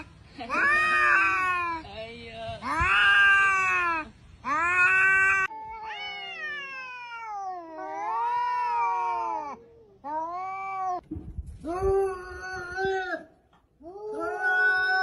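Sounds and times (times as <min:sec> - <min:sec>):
cats yowling: 0:00.0 - 0:01.8, 0:02.7 - 0:11.0, 0:11.8 - 0:15.0.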